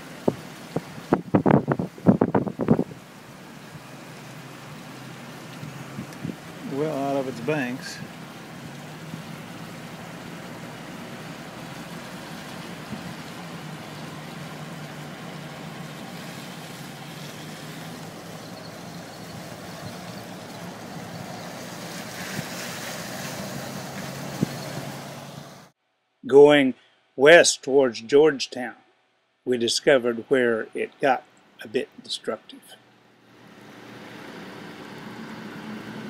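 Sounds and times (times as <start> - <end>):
floodwater rushing: 0.0 - 25.7.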